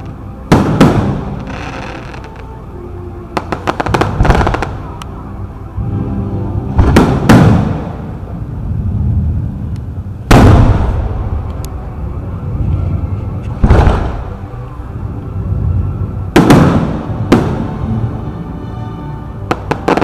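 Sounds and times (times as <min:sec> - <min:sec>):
firework shells booming: 0:00.5 - 0:02.2, 0:06.8 - 0:08.2, 0:10.3 - 0:11.2, 0:13.6 - 0:14.4, 0:16.4 - 0:17.8.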